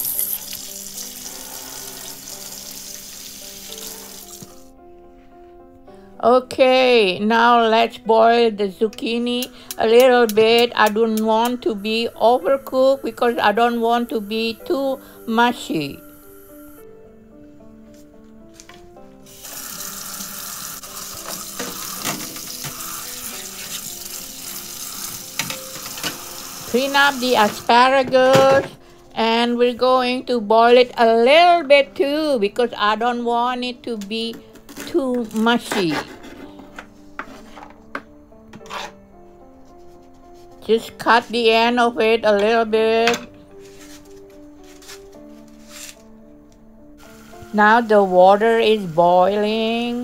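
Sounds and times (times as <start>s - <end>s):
water running into a colander: 0.0s - 4.5s, 19.3s - 27.6s
soft background music: 0.0s - 50.0s.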